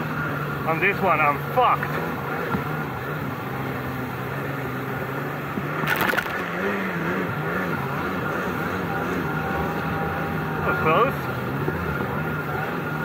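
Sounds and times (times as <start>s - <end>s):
jet ski engine running: 0.0s - 13.0s
loud water splash: 5.8s - 6.5s.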